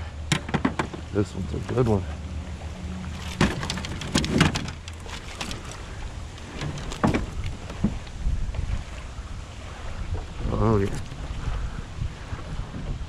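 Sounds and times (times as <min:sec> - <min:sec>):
low steady rumble: 0:00.0 - 0:13.0
knocks against aluminum boat: 0:00.3 - 0:01.2.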